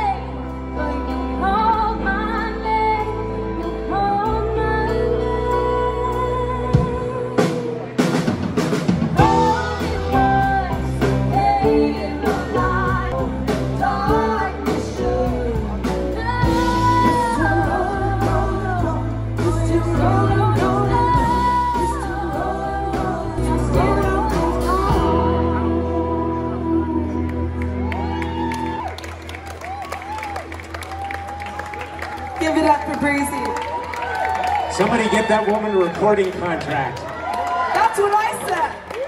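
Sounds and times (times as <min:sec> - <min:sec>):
woman singing: 0:00.0 - 0:08.0, 0:09.2 - 0:27.9
pop-rock band playing: 0:00.0 - 0:33.4.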